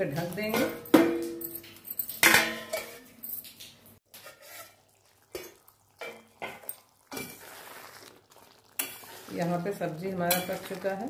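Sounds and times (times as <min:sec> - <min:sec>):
spatula scraping metal pot: 0:04.1 - 0:11.0.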